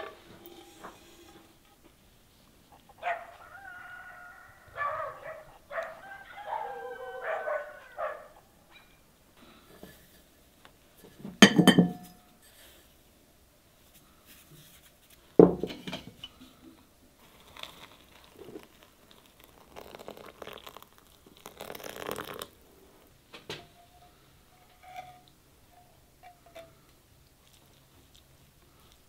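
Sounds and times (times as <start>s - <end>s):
crockery clinking: 11.4s - 12.2s
water pouring into a bowl: 17.2s - 22.6s.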